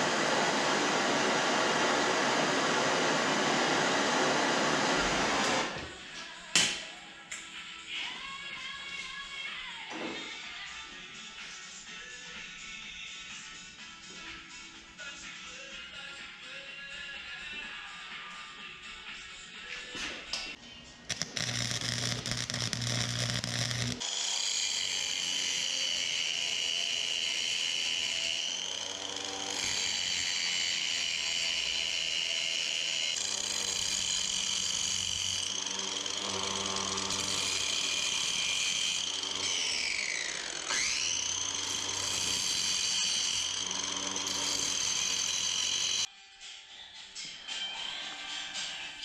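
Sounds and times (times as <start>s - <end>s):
angle grinder whining: 0.0s - 5.8s, 21.1s - 46.1s
welding arc buzz: 21.1s - 46.1s.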